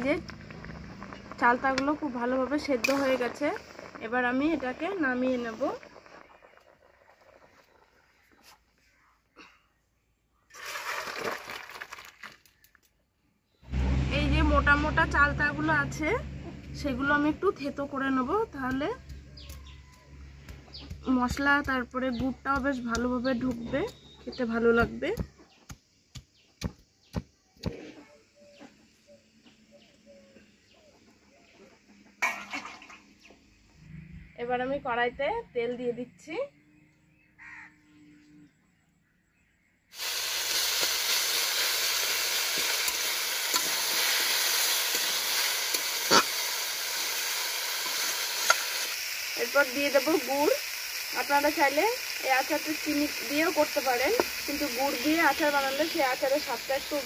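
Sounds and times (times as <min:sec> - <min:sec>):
loud brief noise: 0:13.6 - 0:17.8
faint bird calls: 0:36.7 - 0:38.8.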